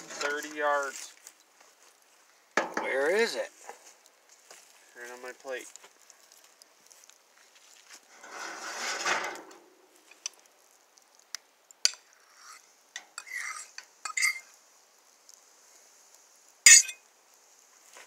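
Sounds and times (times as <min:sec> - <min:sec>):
metal utensils scraping grill grate: 0:00.0 - 0:00.6, 0:08.1 - 0:10.2, 0:11.9 - 0:14.5, 0:16.7 - 0:17.0.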